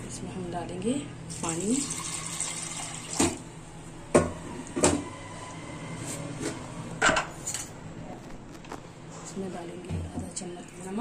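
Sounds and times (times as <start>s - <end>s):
water pouring: 1.4s - 3.4s.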